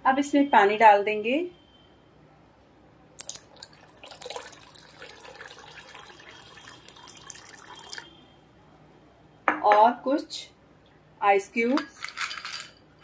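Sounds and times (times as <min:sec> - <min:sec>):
water pouring into a bowl: 0:03.2 - 0:08.1.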